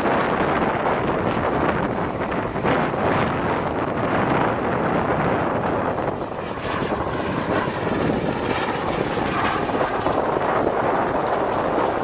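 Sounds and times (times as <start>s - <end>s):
helicopter flying low: 0.0s - 12.0s.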